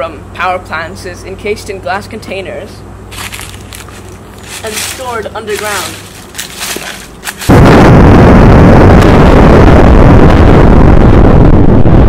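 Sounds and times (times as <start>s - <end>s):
loud deep explosion: 7.4s - 12.0s.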